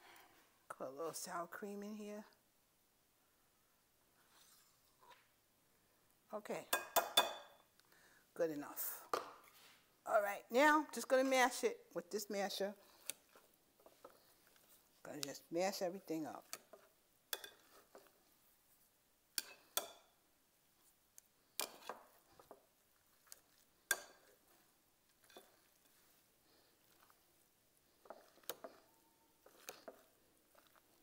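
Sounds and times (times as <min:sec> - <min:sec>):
soft mashing of potatoes: 0:12.1 - 0:31.0.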